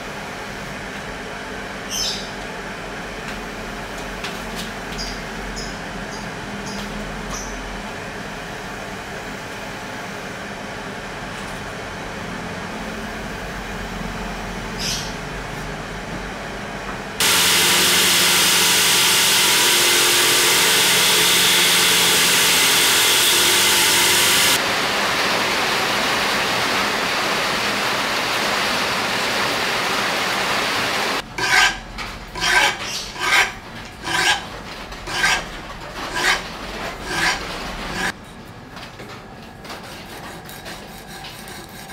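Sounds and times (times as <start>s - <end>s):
file rasping across blade: 17.2s - 24.6s, 31.4s - 31.8s, 32.4s - 34.5s, 35.1s - 38.1s, 39.9s - 41.9s
electric belt grinder running: 17.2s - 31.2s
sandpaper rubbing on knife blade: 31.4s - 31.8s, 32.4s - 34.4s, 35.1s - 35.5s, 36.1s - 36.4s, 37.0s - 38.1s, 39.9s - 41.9s.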